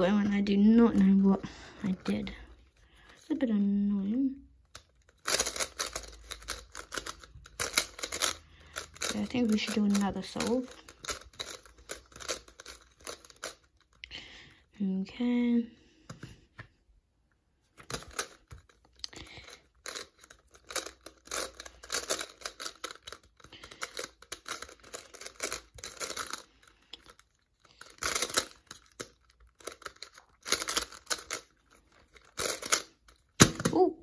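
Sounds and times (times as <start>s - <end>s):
plastic puzzle clicking: 4.7s - 14.0s, 17.8s - 33.9s.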